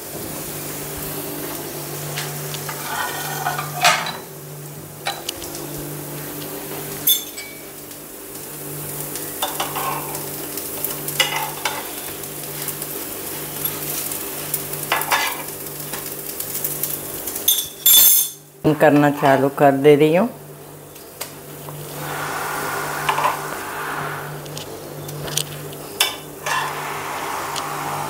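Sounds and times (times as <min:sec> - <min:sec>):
pancakes sizzling in oil: 0:00.0 - 0:18.6.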